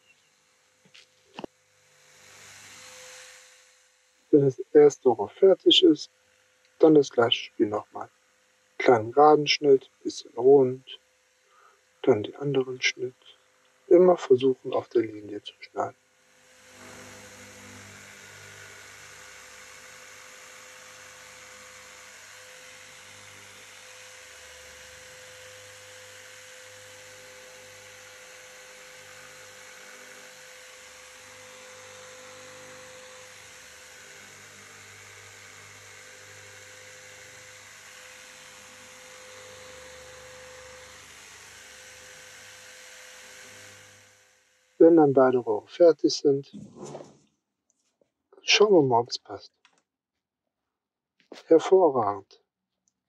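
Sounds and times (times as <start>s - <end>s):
jigsaw cutting: 0.9s - 3.8s, 16.3s - 44.4s
steady hiss: 6.8s - 8.1s, 8.8s - 15.9s.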